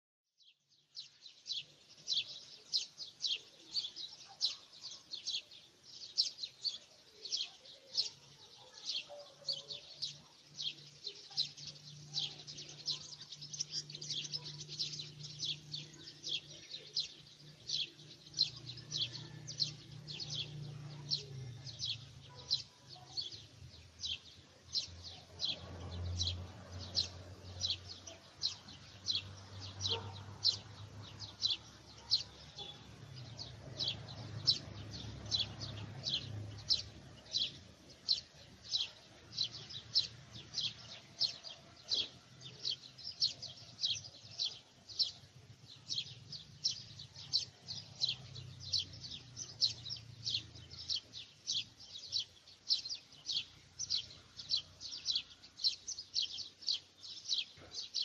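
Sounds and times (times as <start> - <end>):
bird chirping: 0.4 - 58.0.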